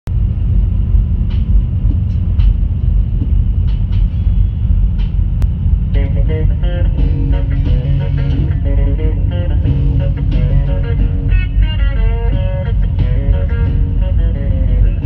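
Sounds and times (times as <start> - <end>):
diesel engine rumble: 0.0 - 15.0
road noise: 0.0 - 15.0
guitar music: 5.4 - 15.0.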